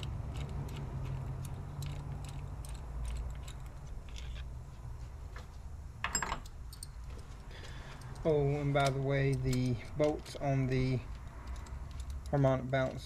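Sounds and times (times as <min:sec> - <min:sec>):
ratchet clicking: 0:00.0 - 0:04.4, 0:08.0 - 0:13.0.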